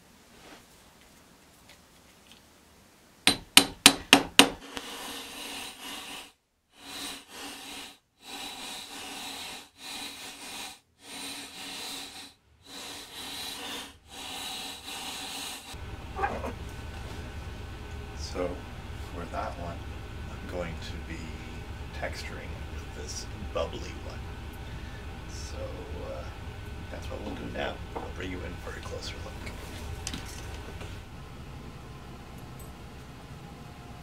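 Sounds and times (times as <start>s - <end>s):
hammer striking wire on metal: 3.2s - 4.6s.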